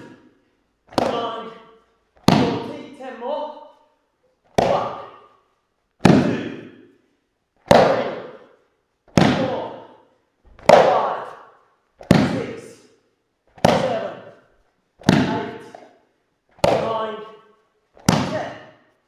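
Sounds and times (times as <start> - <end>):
body slapping onto foam mat: 0.9 - 1.4, 2.2 - 2.7, 7.6 - 8.5, 9.1 - 9.6, 12.0 - 12.5, 13.5 - 14.3, 15.0 - 17.0, 18.0 - 18.7.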